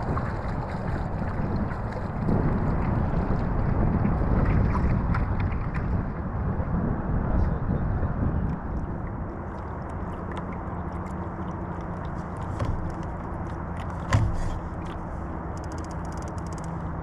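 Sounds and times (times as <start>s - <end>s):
steady low hum: 0.0s - 17.0s
water wash: 0.0s - 17.0s
fine ticking: 11.1s - 16.8s
sharp knock: 14.1s - 14.6s.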